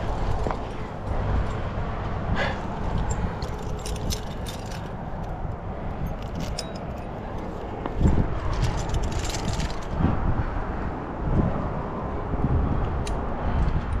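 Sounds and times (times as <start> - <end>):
wind rumble on microphone: 0.0 - 14.0
metal climbing gear clinking: 2.4 - 10.0.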